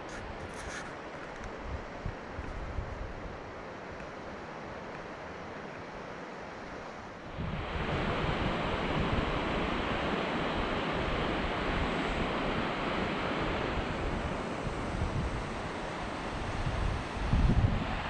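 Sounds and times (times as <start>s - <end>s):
wind buffeting microphone: 1.5s - 3.5s, 7.3s - 18.0s
creek rushing: 3.6s - 18.0s.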